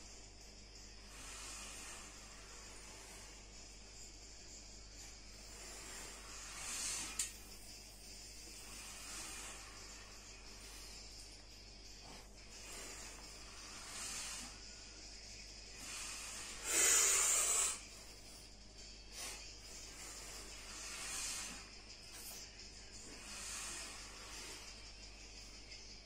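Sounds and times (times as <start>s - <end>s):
man breathing hard: 8.4s - 22.0s.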